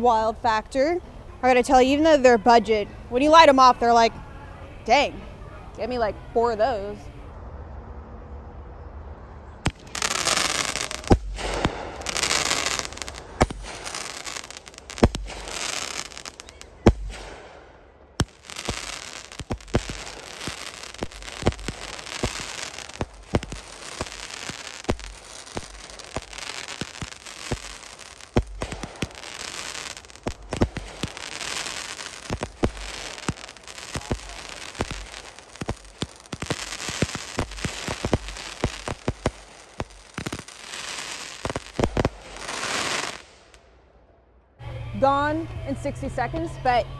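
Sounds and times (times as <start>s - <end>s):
firework aerial bursts: 9.6s - 43.6s
firework crackling: 9.6s - 43.7s
firework launch thumps: 11.0s - 12.7s, 13.4s - 14.1s, 16.5s - 27.7s.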